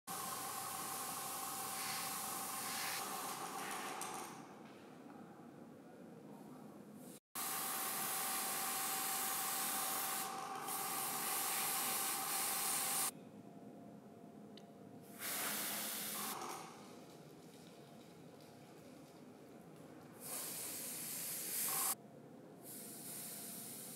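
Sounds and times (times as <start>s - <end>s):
airbrush spraying hiss: 0.9s - 3.2s, 7.4s - 13.1s, 15.2s - 16.4s, 20.2s - 22.0s, 22.6s - 23.9s.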